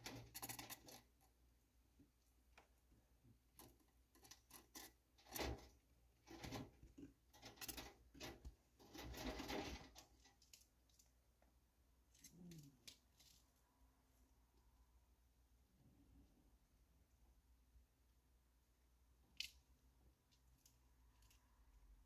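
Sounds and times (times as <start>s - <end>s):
claws scratching on wire mesh: 0.0s - 1.3s, 3.6s - 10.7s.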